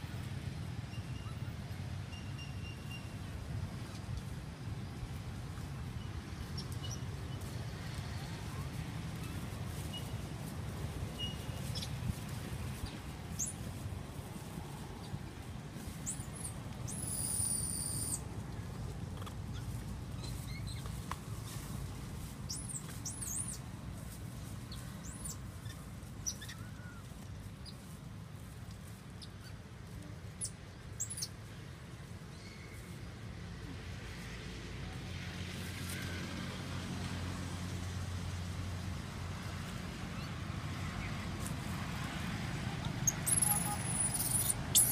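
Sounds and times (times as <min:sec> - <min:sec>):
animal chirps and squeaks: 0:11.2 - 0:12.0, 0:16.0 - 0:18.3, 0:19.5 - 0:20.9, 0:22.5 - 0:23.6, 0:24.7 - 0:27.8, 0:30.4 - 0:31.4, 0:43.0 - 0:44.9.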